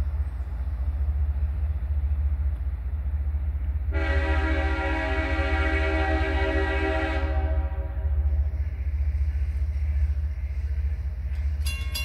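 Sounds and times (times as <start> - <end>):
train air horn chord: 3.9 - 8.1.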